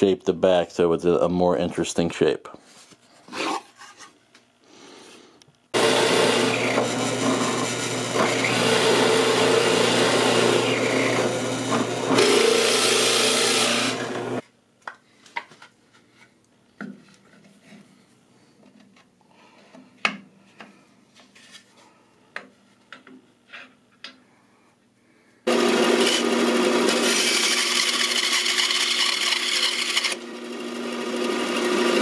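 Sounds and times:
drill press cutting wood: 0:05.8 - 0:14.4, 0:25.5 - 0:32.0.

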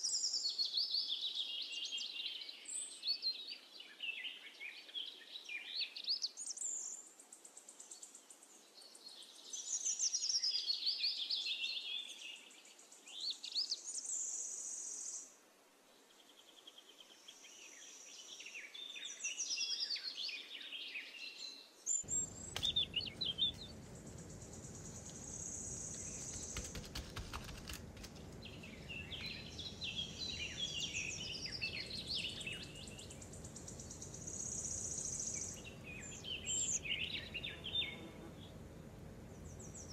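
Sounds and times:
birds chirping and singing: 0:21.9 - 0:38.6
low steady background hum: 0:21.9 - 0:39.9
high bird trill: 0:22.0 - 0:38.0.

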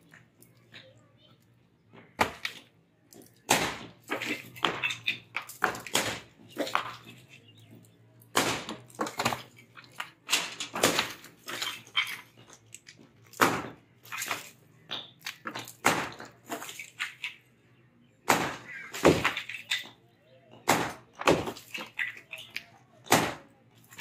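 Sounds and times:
hammers knocking on concrete: 0:03.2 - 0:12.6.

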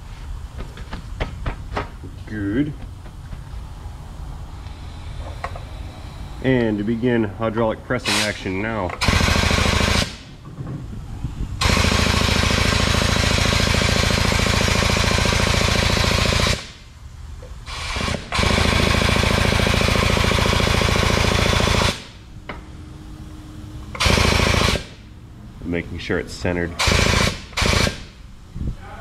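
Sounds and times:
hydraulic pump pulsing: 0:10.8 - 0:16.6, 0:17.6 - 0:22.1.

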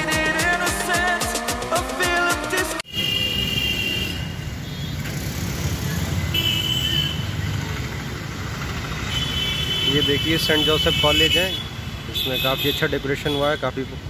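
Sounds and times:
background music: 0:00.0 - 0:02.9
road traffic rumble: 0:02.8 - 0:14.0.

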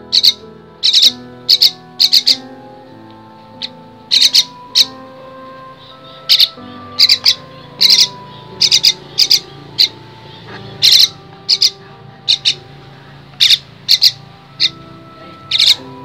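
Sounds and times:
bird chick raspy begging calls: 0:00.0 - 0:16.0.

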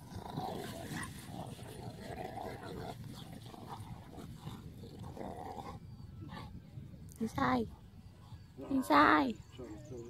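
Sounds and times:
dogs vocalising: 0:00.0 - 0:06.6.

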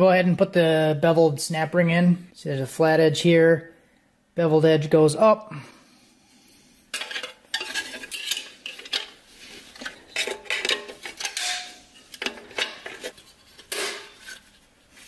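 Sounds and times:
metallic clinks and scrapes: 0:06.9 - 0:14.6.

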